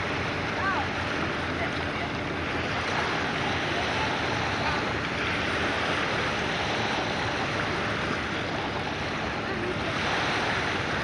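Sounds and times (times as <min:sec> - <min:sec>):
seaplane rushing through water: 0:00.0 - 0:11.0.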